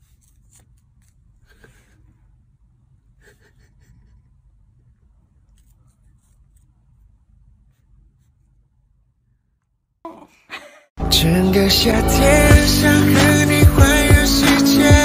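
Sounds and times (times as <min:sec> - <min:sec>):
low room hum: 0:00.0 - 0:09.8
loud pop music: 0:11.0 - 0:15.0.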